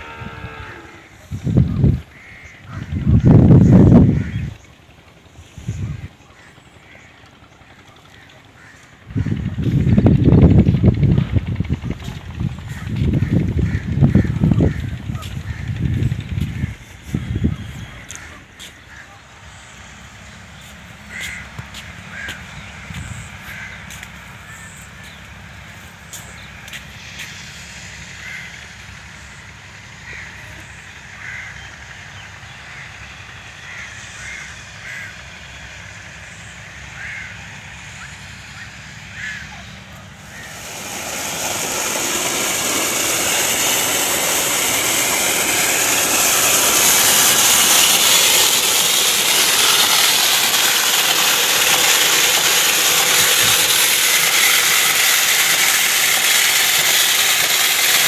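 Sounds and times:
low hum: 0:00.0 - 0:06.2, 0:39.3 - 0:58.0
water pump rushing: 0:00.0 - 0:19.4, 0:39.1 - 0:58.0.

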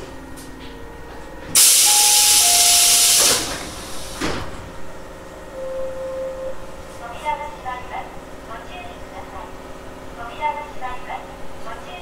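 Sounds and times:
train doors thud: 0:00.6 - 0:04.7
compressed air hissing: 0:01.6 - 0:04.3.

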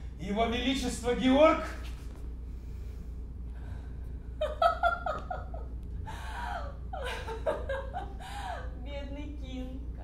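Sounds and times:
woman laughing: 0:04.4 - 0:08.8.

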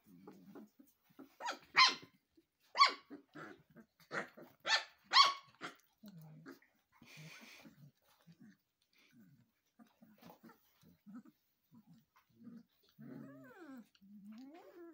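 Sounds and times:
puppies yipping: 0:00.8 - 0:03.4, 0:04.1 - 0:05.8
puppies grumbling: 0:02.9 - 0:14.9.

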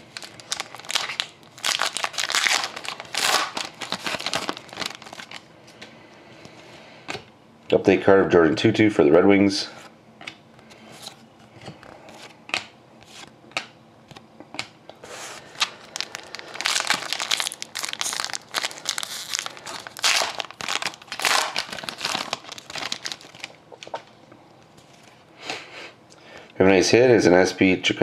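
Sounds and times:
foil wrapper crinkling: 0:00.0 - 0:05.5, 0:15.1 - 0:24.0.

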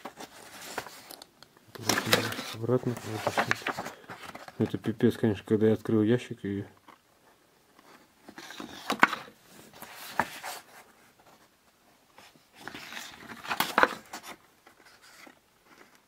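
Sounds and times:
photographs being shuffled: 0:01.8 - 0:04.9.

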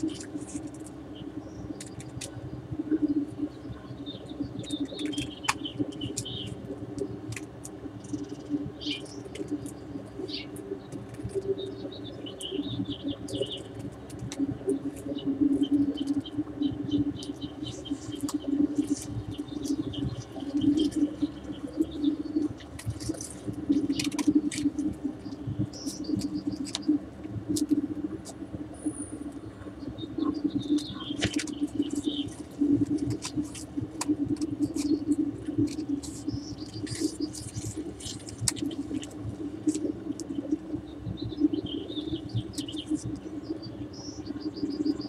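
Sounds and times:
scattered clicks: 0:00.0 - 0:02.4, 0:04.4 - 0:16.4, 0:17.0 - 0:29.2, 0:30.2 - 0:45.0
steady low hum: 0:00.0 - 0:45.0
birds chirping and calling: 0:03.0 - 0:06.6, 0:29.7 - 0:33.7, 0:39.6 - 0:45.0.

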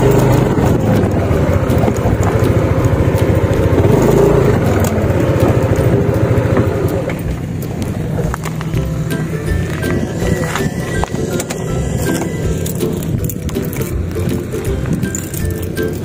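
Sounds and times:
road noise: 0:00.0 - 0:16.0
scooter engine running: 0:00.0 - 0:16.0.

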